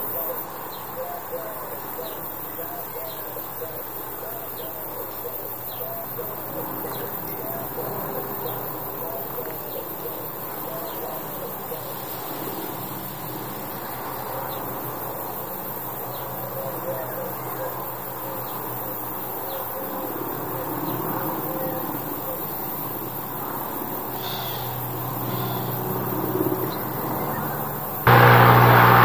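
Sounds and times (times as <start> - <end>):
outdoor background noise: 0.0 - 29.0
distant helicopter drone: 19.8 - 29.0.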